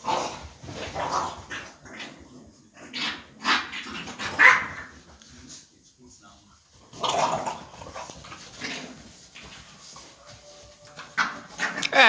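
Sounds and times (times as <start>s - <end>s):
puppy barking: 4.3s - 4.9s.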